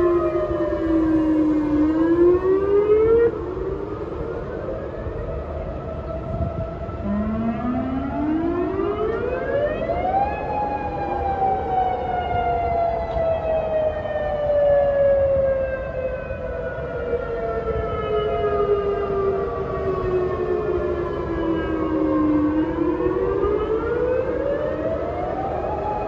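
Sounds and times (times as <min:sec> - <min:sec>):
steady siren tone: 0:00.0 - 0:26.0
siren winding up and falling: 0:06.9 - 0:13.7.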